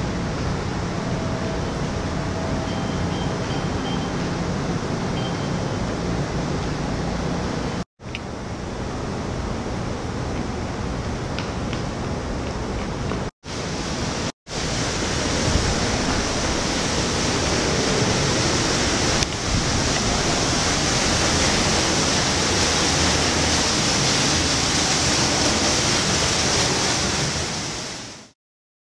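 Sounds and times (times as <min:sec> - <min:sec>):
indoor waterfall rushing: 0:00.0 - 0:07.8, 0:13.5 - 0:28.4.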